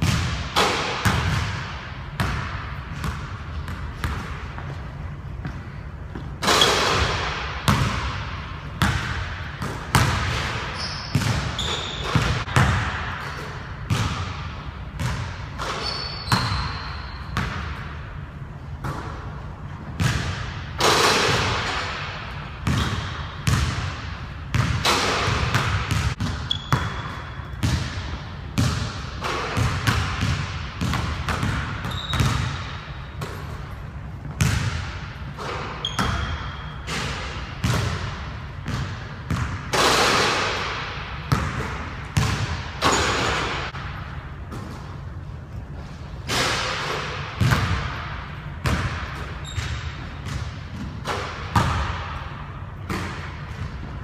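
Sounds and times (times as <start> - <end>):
sneaker squeaks: 3.0 - 7.1, 10.4 - 12.5, 15.0 - 17.6, 26.1 - 27.7, 31.3 - 34.6, 35.4 - 37.8, 41.3 - 43.8, 49.1 - 50.8
basketballs bouncing on hardwood: 34.2 - 34.9, 37.2 - 40.3, 47.4 - 47.9.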